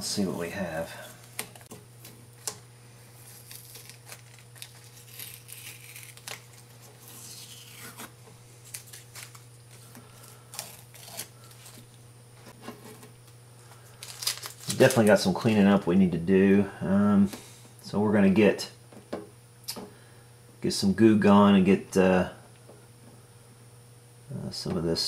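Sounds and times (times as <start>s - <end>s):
tape peeling and crinkling: 1.2s - 12.0s, 12.6s - 15.3s.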